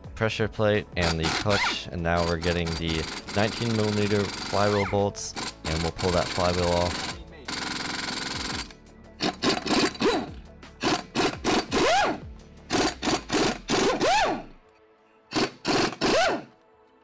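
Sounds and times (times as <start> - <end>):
background music: 0.0 - 17.0
air impact wrench whining: 1.0 - 14.5, 15.3 - 16.5.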